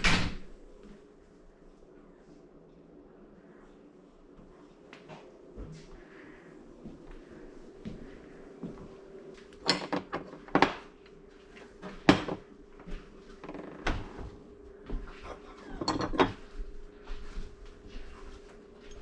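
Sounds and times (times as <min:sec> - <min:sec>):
faint steady hum: 0:00.0 - 0:19.0
ceramic dishes clinking on glass: 0:15.7 - 0:16.4.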